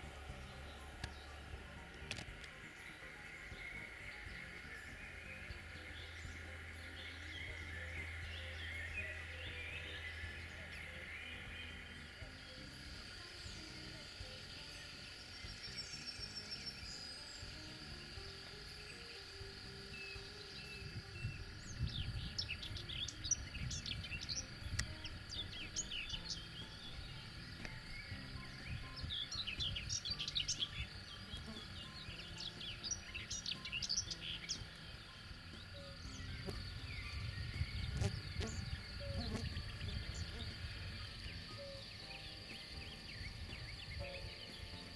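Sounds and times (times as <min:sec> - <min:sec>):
birds singing: 0:00.0 - 0:44.9
faint high-pitched background: 0:00.0 - 0:44.9.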